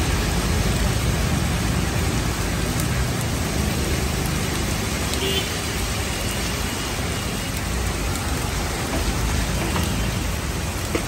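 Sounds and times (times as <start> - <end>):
heavy rain on pavement: 0.0 - 11.0.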